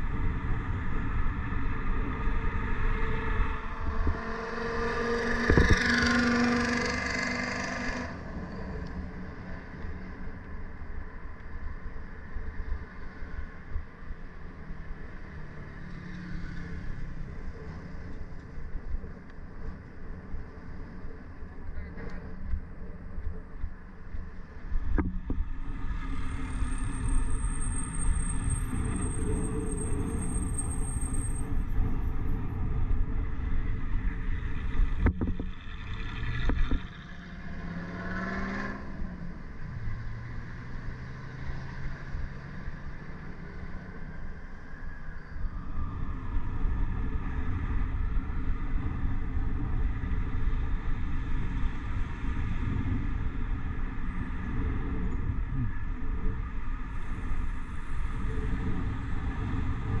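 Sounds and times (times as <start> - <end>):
wind rumbling on microphone: 0.0 - 7.2, 16.7 - 37.6, 38.7 - 60.0
city street traffic: 0.0 - 60.0
engine revving up: 4.1 - 8.2, 37.2 - 39.0.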